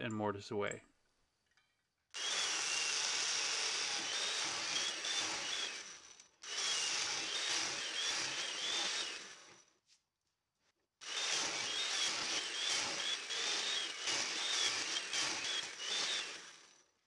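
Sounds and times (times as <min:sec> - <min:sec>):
chain mortiser cutting wood: 0:02.2 - 0:09.7, 0:11.0 - 0:16.8.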